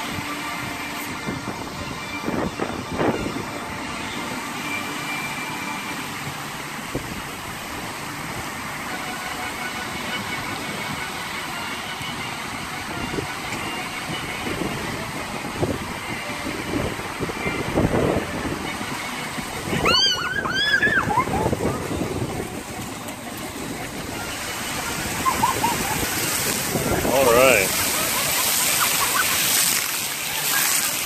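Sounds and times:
wind buffeting microphone: 0.0 - 4.2, 12.5 - 28.8
fountain water jets spraying: 0.0 - 31.0.

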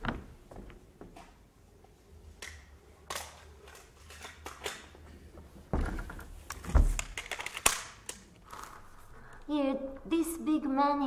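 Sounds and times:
cassette handling clicks: 6.5 - 8.7.

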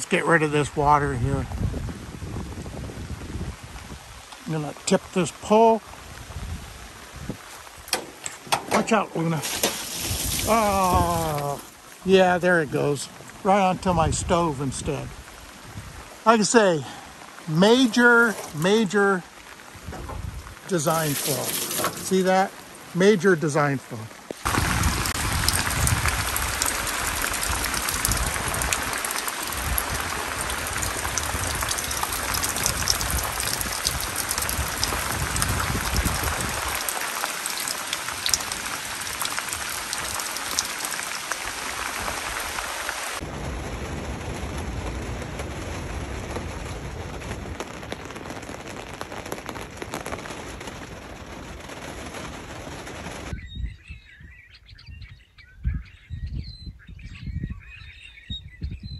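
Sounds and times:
raindrop hits: 0.0 - 53.3
heavy rain on tarp and tent: 0.0 - 53.5
birds chirping: 53.3 - 58.9.

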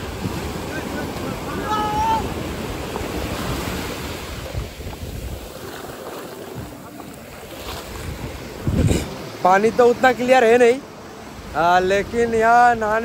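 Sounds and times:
wind buffeting microphone: 0.0 - 10.1
sea surf rushing onto beach: 0.0 - 13.0.

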